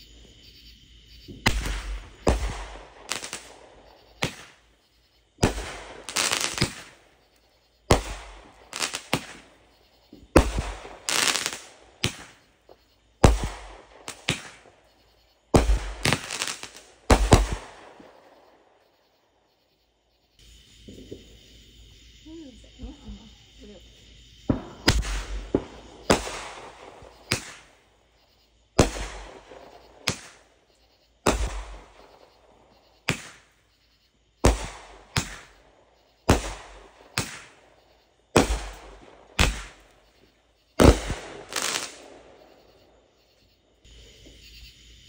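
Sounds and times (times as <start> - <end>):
firework bangs: 1.2 - 4.8, 5.4 - 18.8, 20.8 - 21.6, 24.4 - 28.0, 28.6 - 33.6, 34.4 - 43.0.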